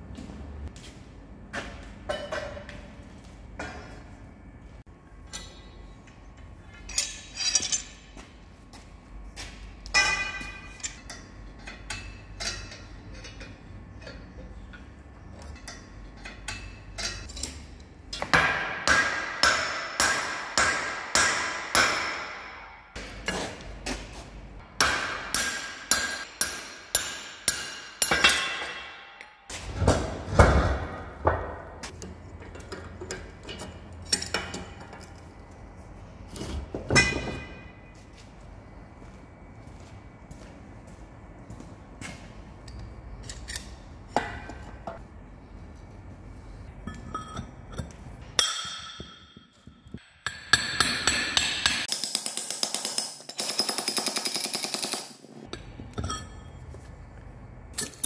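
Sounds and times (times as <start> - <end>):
metal clanks of clamps: 5.2 - 8.3, 9.8 - 20.2, 30.7 - 35.2, 36.4 - 37.8, 42.7 - 45.0, 46.9 - 56.5
hammer striking steel: 9.8 - 13.5, 15.6 - 23.6, 24.6 - 31.7, 36.9 - 37.9, 43.3 - 45.0, 46.8 - 56.4.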